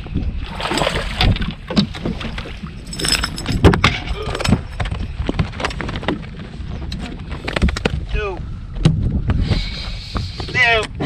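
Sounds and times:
steady low rumble: 0.0 - 11.0
fishing gear clicks and rattles: 0.7 - 8.1.

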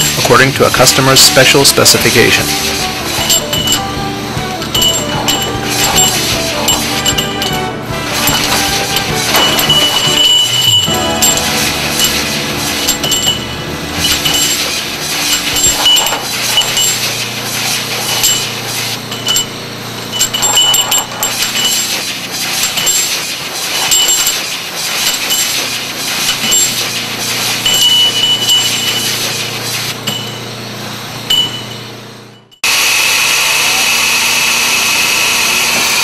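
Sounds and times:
brushes scrubbing steel pipes: 0.0 - 30.5
metallic clinks of pipes: 0.0 - 32.7
machine hum: 0.0 - 36.0.

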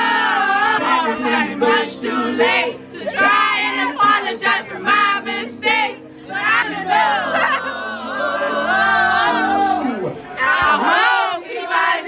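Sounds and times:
crowd singing along: 0.0 - 12.0
music: 0.0 - 12.0.

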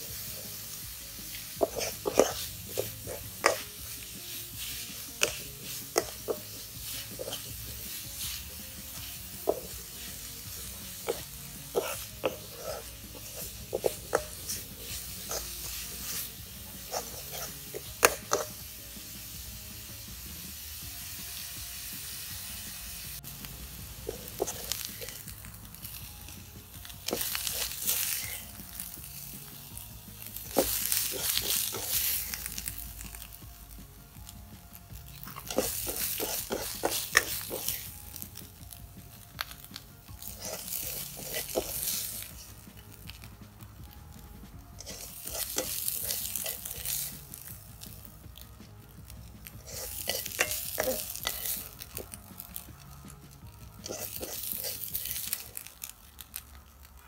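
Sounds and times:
spoon scraping a metal wok: 0.0 - 18.8, 24.0 - 29.3, 30.2 - 33.3, 35.0 - 38.6, 39.4 - 42.7, 44.7 - 48.5, 49.3 - 52.7, 53.8 - 56.3
steady sizzle: 0.0 - 57.0.

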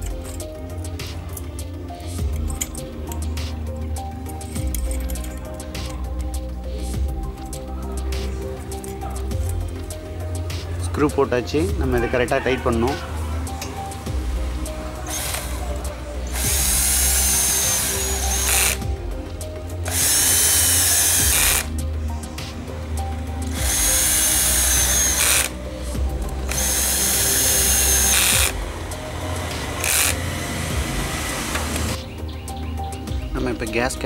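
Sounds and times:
cordless drill running: 15.1 - 15.6, 16.3 - 18.8, 19.9 - 21.7, 23.5 - 25.5, 26.4 - 32.0.

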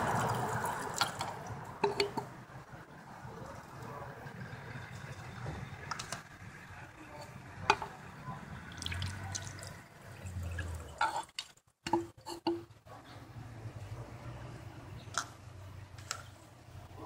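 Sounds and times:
liquid trickling and dripping: 8.6 - 12.6.

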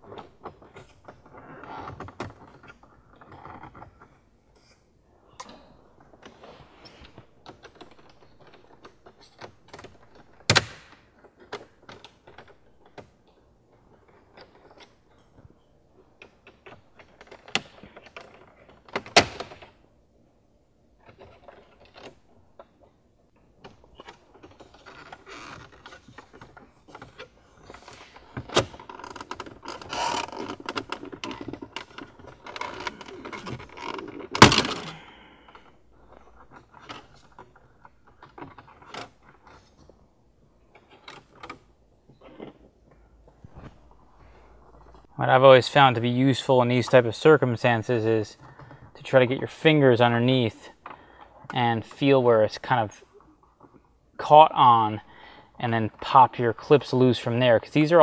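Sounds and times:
plastic panel creaking: 21.0 - 40.0.

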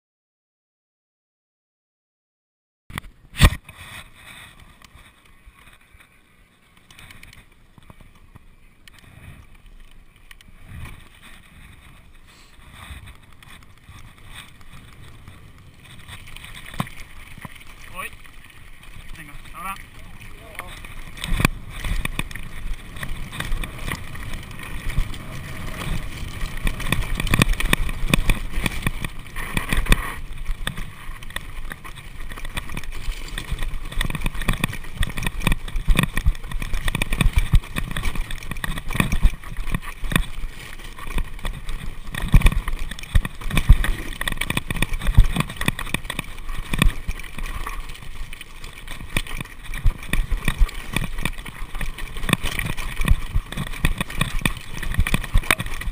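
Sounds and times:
mountain bike rattling: 3.0 - 55.9
wind noise on microphone: 20.0 - 48.0.

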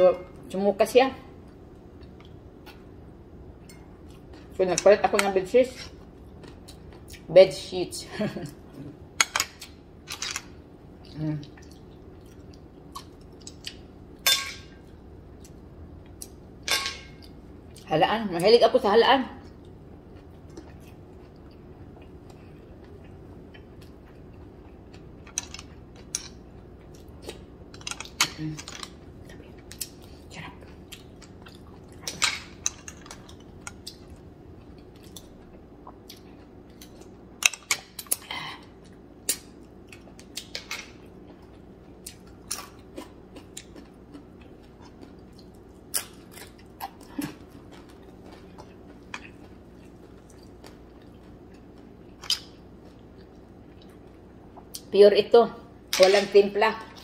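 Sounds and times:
person chewing: 10.9 - 13.9, 19.4 - 54.8
spoon clinking against bowls: 14.2 - 14.8.

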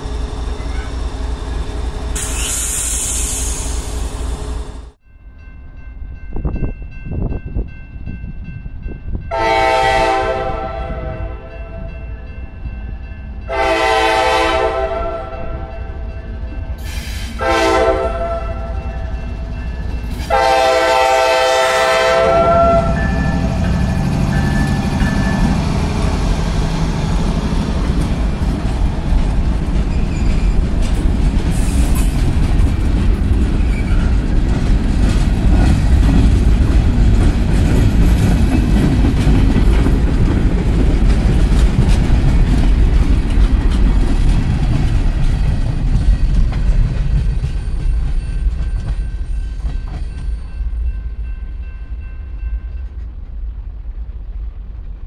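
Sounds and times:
train cars rumbling and clattering: 0.0 - 55.0
locomotive horn blasts: 9.3 - 11.6, 13.5 - 15.7, 17.4 - 18.8, 20.3 - 25.0.

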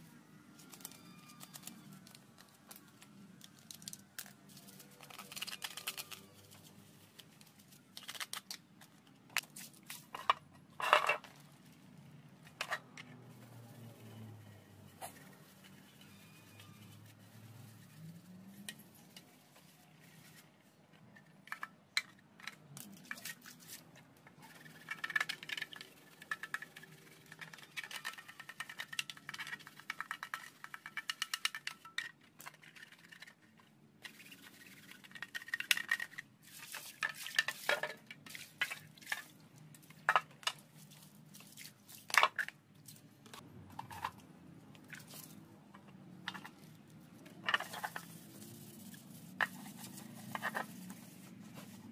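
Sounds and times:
plastic bag crinkling: 0.5 - 8.6
brush scrubbing plastic: 34.0 - 42.1, 46.3 - 51.9.

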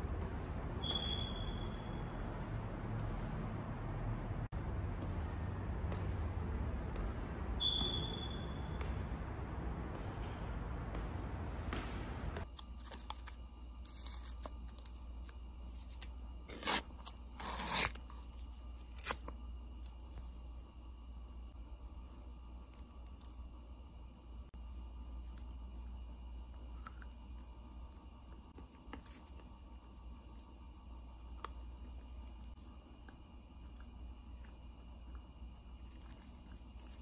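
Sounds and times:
paper wrapper crinkling and tearing: 12.4 - 19.3.

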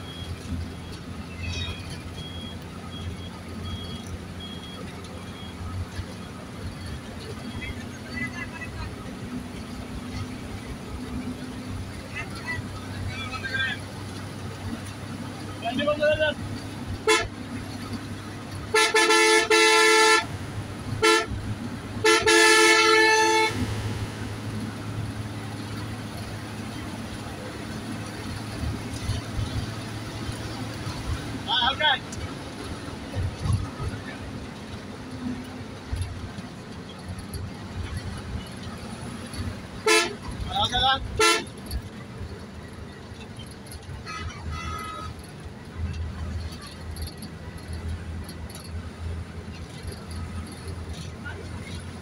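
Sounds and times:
vehicle engine and road rumble: 0.0 - 52.0
vehicle horn honking: 17.0 - 17.4, 18.7 - 20.3, 21.0 - 21.4, 22.0 - 23.6, 39.8 - 40.2, 41.2 - 41.7, 44.0 - 45.2.

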